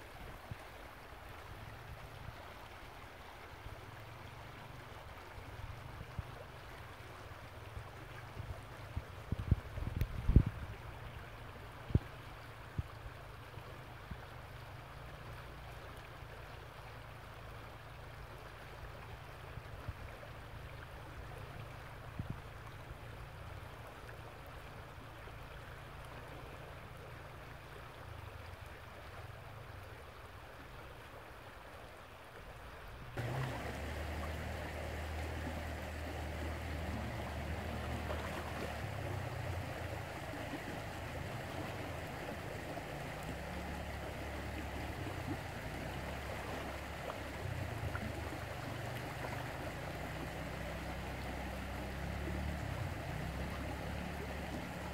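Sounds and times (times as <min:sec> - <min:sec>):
creek water over gravel: 0:00.0 - 0:54.9.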